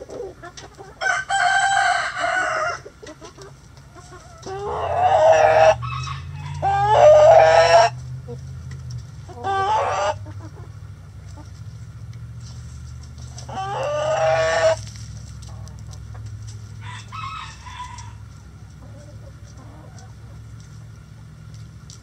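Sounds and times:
hens clucking: 0.0 - 22.0
rooster crowing: 1.0 - 2.8, 4.6 - 8.0, 13.5 - 14.8, 16.8 - 18.2.

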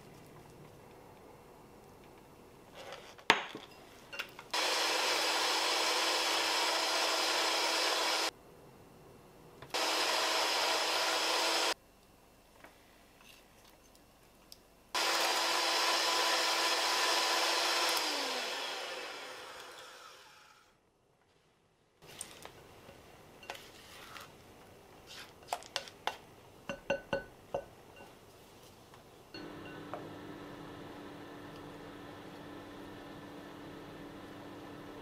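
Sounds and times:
electric hand mixer whirring: 4.6 - 8.3, 9.8 - 11.8, 15.0 - 20.6.

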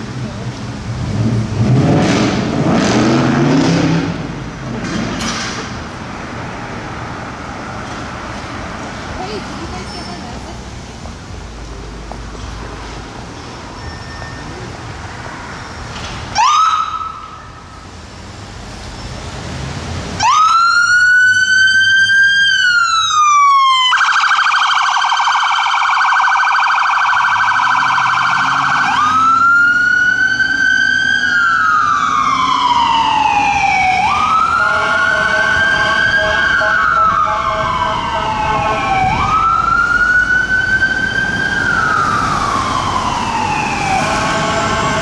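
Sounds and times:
low traffic noise: 0.0 - 45.0
electronic siren wailing: 20.3 - 45.0.

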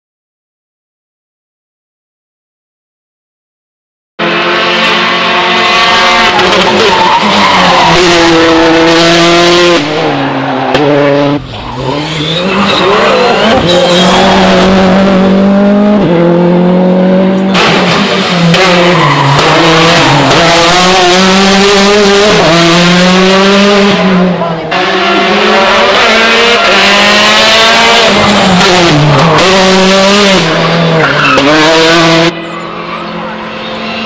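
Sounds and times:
rally car engines revving: 4.2 - 34.0
tyre squeal: 6.4 - 8.4, 11.4 - 14.6, 30.6 - 31.7.

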